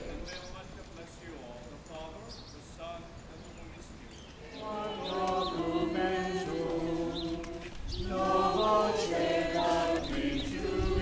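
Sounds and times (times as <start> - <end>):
congregation singing a hymn: 4.3 - 11.0.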